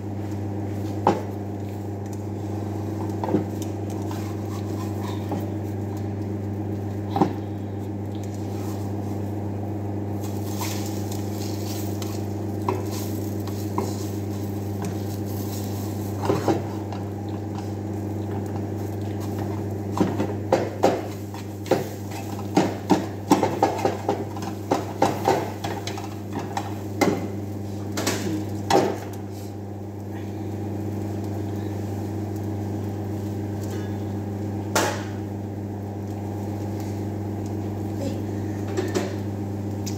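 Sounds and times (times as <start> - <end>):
steady machine hum: 0.0 - 39.9
spatula scraping a frying pan: 4.0 - 5.5.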